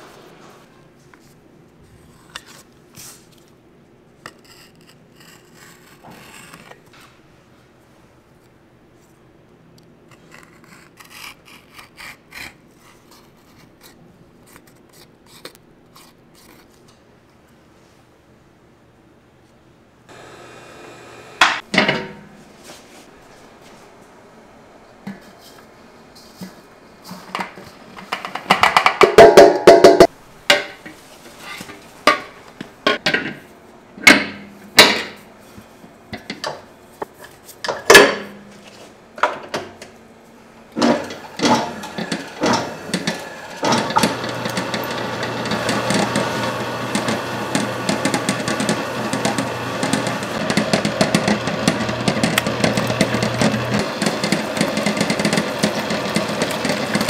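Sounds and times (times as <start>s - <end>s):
machine humming: 20.1s - 21.7s, 40.6s - 57.0s
tools and utensils clattering: 40.8s - 46.2s.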